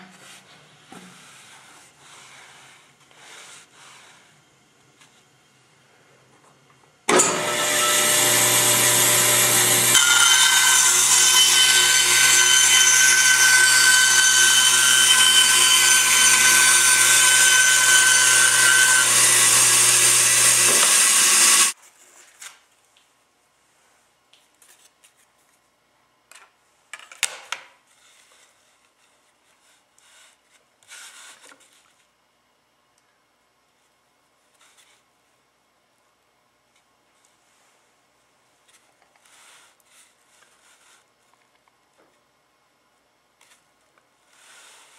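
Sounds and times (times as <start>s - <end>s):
power saw cutting wood: 7.1s - 21.8s.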